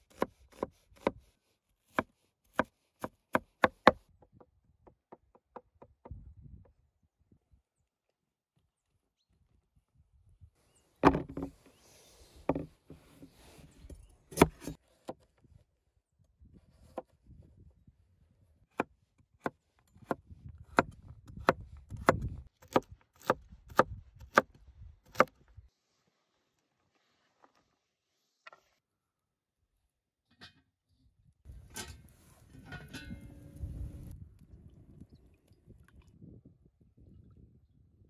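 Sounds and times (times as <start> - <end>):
cleaver chopping on wooden board: 1.9 - 4.0, 19.4 - 24.5.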